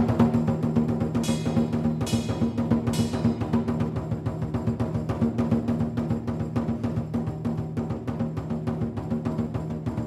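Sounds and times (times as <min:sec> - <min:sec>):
cymbal crash: 0:00.0 - 0:05.1
drum beaten in quick rhythm: 0:00.0 - 0:10.0.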